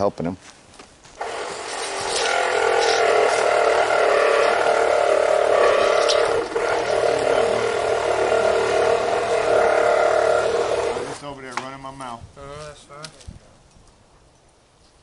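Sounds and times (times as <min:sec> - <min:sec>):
motor running: 0:01.2 - 0:11.2.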